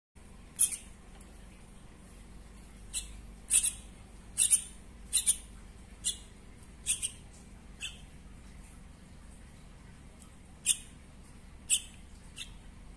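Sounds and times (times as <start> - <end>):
baby bird begging chirps: 0.6 - 0.9, 2.9 - 7.2, 7.8 - 8.1, 10.6 - 10.9, 11.6 - 12.6.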